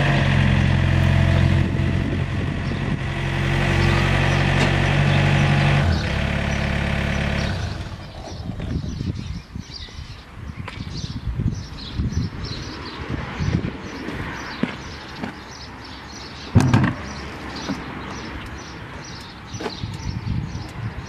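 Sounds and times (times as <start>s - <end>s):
excavator diesel engine running: 0.0s - 8.4s.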